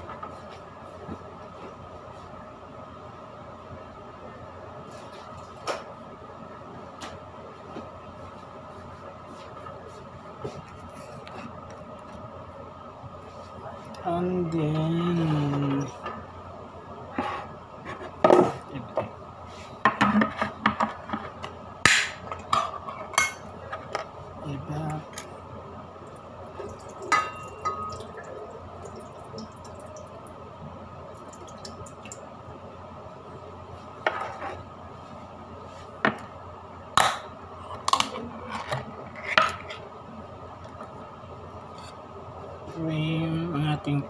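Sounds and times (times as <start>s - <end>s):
steady hum: 0.0s - 44.0s
pot and utensils clinking: 27.1s - 28.2s.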